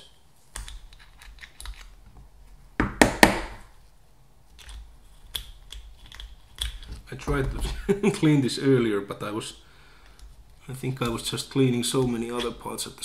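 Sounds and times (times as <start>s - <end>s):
light clicks and taps of parts: 10.0s - 11.3s.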